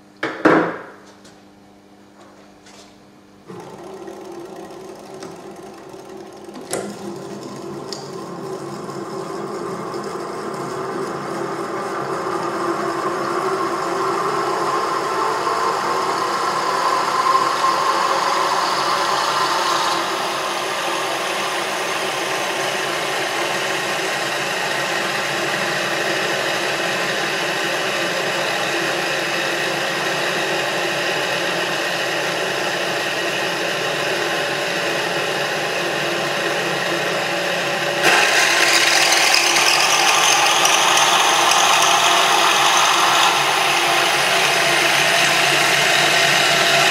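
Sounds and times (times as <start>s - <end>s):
small motor rattling buzz: 3.5s - 8.8s, 38.0s - 46.9s.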